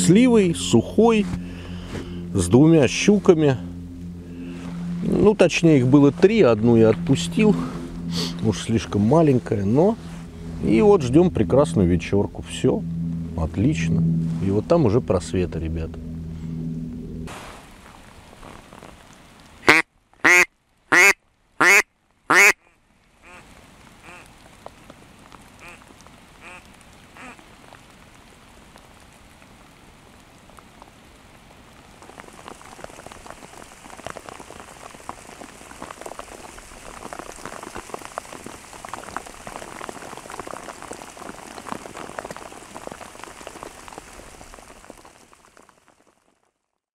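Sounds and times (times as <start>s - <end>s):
rain pattering: 0.0s - 16.4s, 17.0s - 46.9s
duck quacking: 19.6s - 23.4s, 24.0s - 24.2s, 25.6s - 25.8s, 26.4s - 26.6s, 27.2s - 27.4s.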